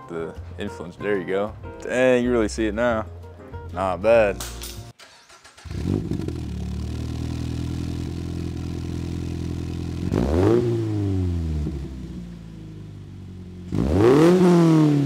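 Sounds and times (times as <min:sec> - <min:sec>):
car engine starting and idling: 0:05.0 - 0:13.9
engine revving: 0:05.1 - 0:12.9, 0:13.5 - 0:15.0.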